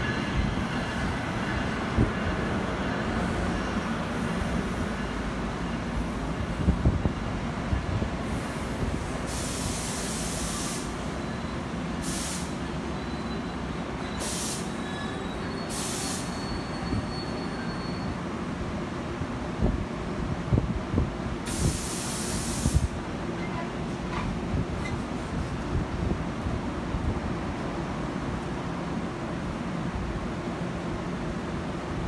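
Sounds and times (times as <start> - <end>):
train rumbling: 0.0 - 32.0
air hissing bursts: 9.2 - 11.1, 12.0 - 12.6, 14.2 - 14.8, 15.7 - 16.3, 21.4 - 23.0.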